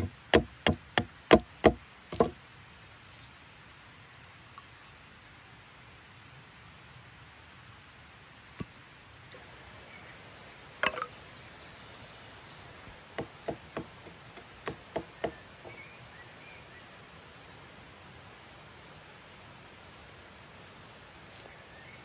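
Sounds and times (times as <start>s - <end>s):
axe striking wood: 0.0s - 2.4s.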